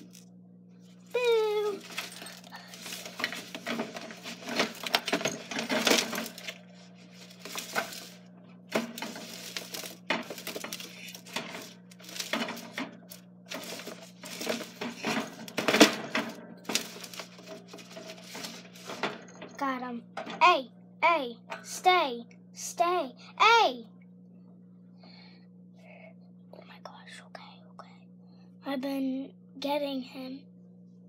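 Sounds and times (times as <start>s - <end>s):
faint steady hum: 0.0s - 31.0s
wire cage clinking and rattling: 1.3s - 6.6s, 7.2s - 19.5s.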